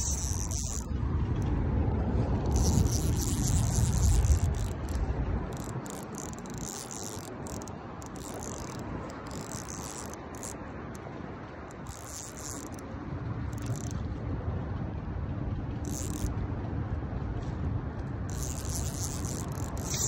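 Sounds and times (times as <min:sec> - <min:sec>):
low rumble: 0:00.0 - 0:06.6, 0:12.8 - 0:19.9.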